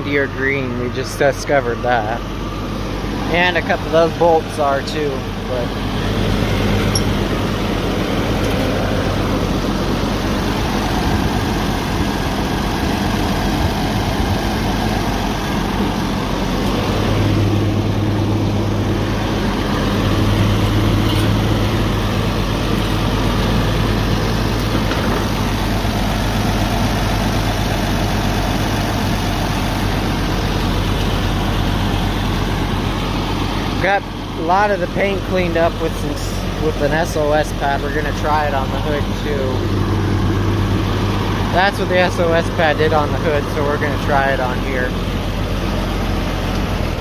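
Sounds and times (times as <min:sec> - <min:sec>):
tractor engine idling: 0:00.0 - 0:47.0.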